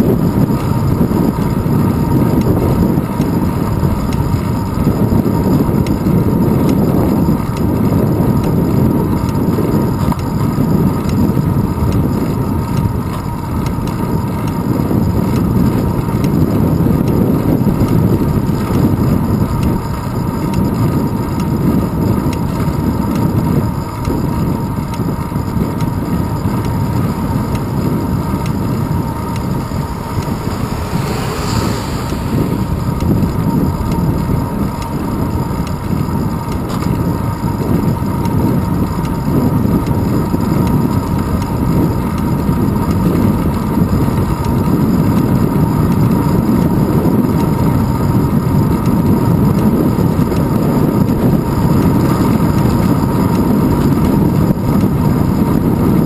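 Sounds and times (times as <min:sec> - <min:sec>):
bicycle road rumble: 0:00.0 - 0:56.0
wind buffeting: 0:14.6 - 0:56.0.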